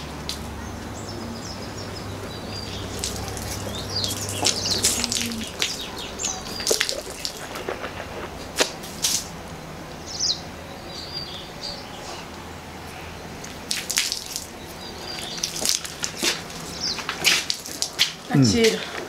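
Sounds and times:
birds chirping: 0.0s - 19.0s
person slurping a drink: 6.8s - 8.7s.

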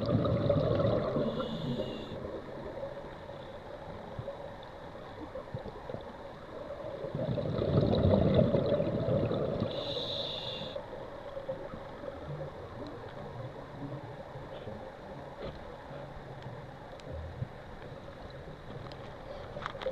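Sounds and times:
exhaled bubbles rushing: 0.0s - 1.4s, 6.9s - 9.7s
faint steady hum: 0.0s - 19.9s
diver breathing through regulator: 1.2s - 2.2s, 9.7s - 10.8s.

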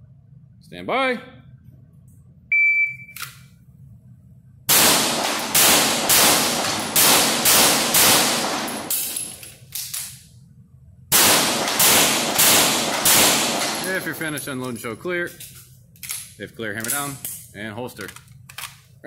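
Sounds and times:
shot timer beep: 2.5s - 3.2s
pistol shots echoing: 4.7s - 9.4s, 11.1s - 14.4s.

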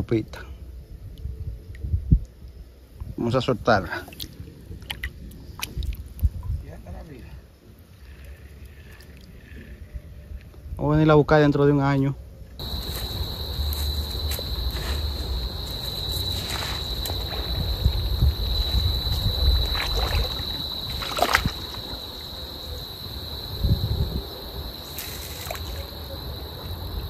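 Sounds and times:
low wind rumble: 0.0s - 11.0s, 12.1s - 27.0s
high insect trill: 0.0s - 27.0s
water sloshing: 12.6s - 23.1s, 24.8s - 26.0s.

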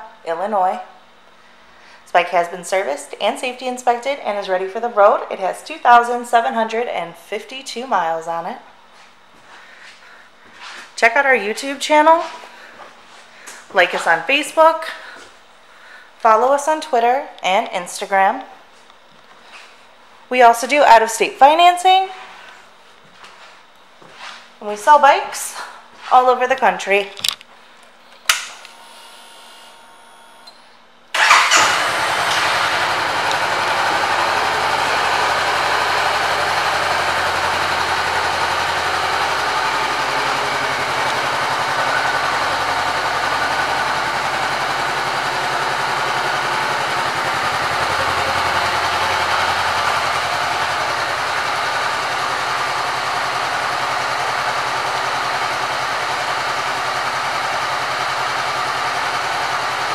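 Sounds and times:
faint electrical hum: 0.0s - 31.7s
motorcycle engine starting and idling: 31.1s - 59.9s.

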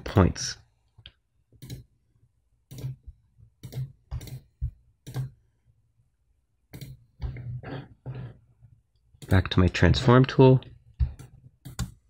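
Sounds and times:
computer mouse clicks: 1.0s - 1.9s, 3.6s - 5.4s, 6.7s - 7.0s, 11.2s - 12.0s.

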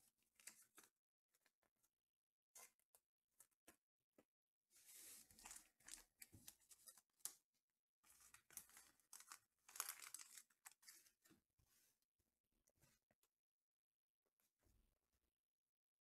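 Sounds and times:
trading cards and wrappers rustling: 4.9s - 7.0s, 8.1s - 11.2s.

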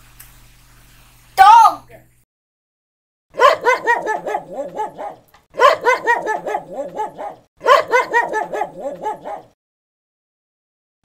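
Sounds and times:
dog barking: 3.3s - 9.6s.

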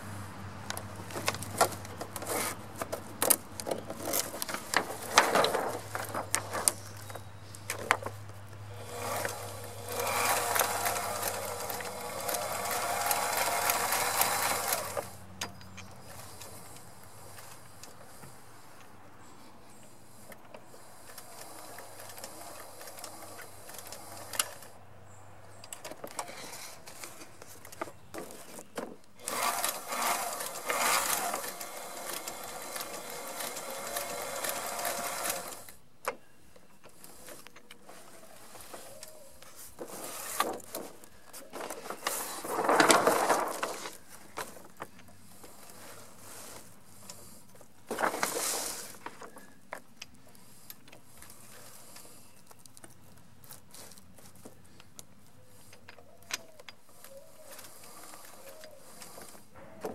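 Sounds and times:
sewing machine stitching: 8.8s - 15.1s, 29.2s - 35.7s.

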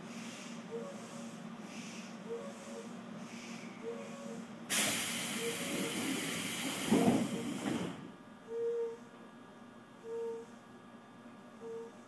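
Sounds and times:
compressed air hissing: 4.7s - 8.0s.

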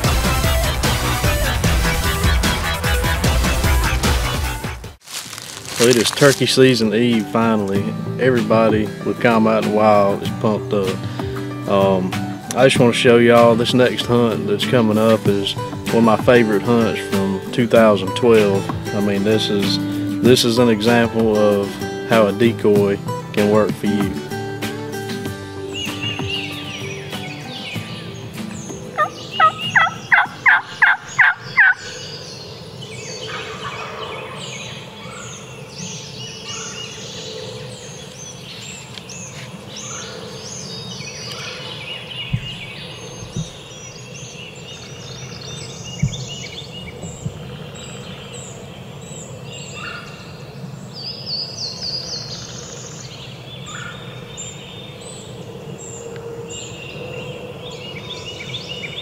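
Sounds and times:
songbirds chirping: 5.0s - 59.0s
turkey yelps: 29.0s - 32.0s.

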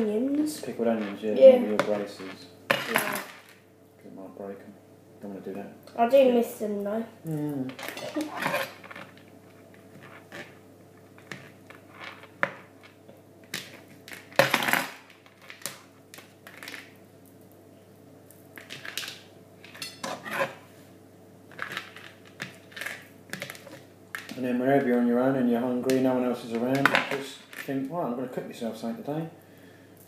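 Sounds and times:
cutlery clatter: 7.8s - 8.9s, 18.7s - 20.6s.

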